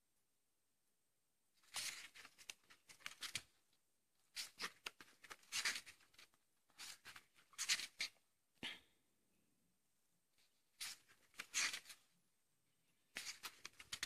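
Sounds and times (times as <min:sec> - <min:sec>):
book pages flipping: 0:01.6 - 0:08.2, 0:10.4 - 0:12.1, 0:13.0 - 0:14.0.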